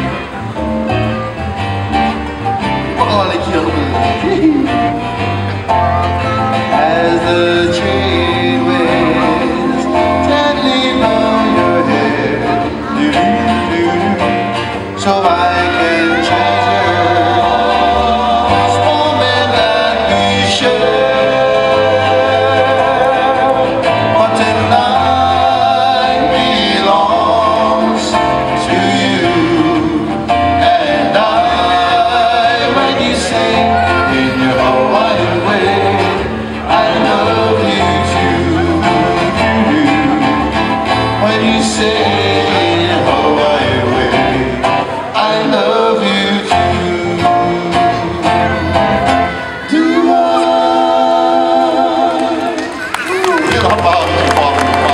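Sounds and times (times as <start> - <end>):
acoustic guitar strumming: 0.0 - 52.9
band singing: 0.0 - 54.9
electric bass guitar: 0.0 - 54.9
ukulele: 0.0 - 54.9.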